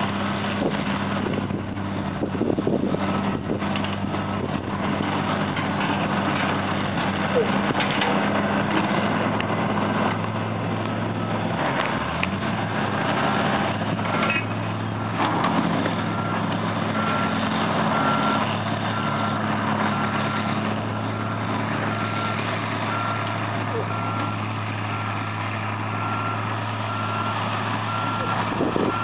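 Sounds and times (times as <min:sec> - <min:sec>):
excavator diesel engines running: 0:00.0 - 0:29.0
reversing alarm beeping: 0:17.0 - 0:25.2, 0:26.0 - 0:29.0.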